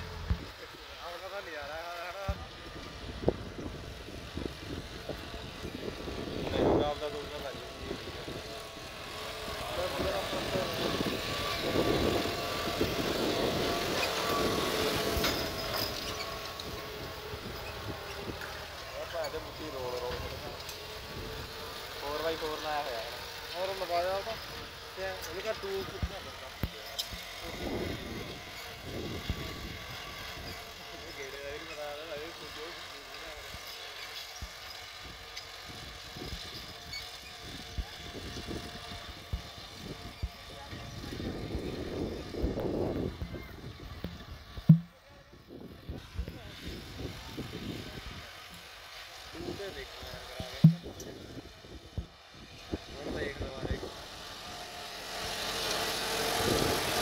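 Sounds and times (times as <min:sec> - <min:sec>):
tractor diesel engine under load: 0:00.0 - 0:57.0
short low thumps: 0:44.6 - 0:45.0, 0:50.5 - 0:51.0.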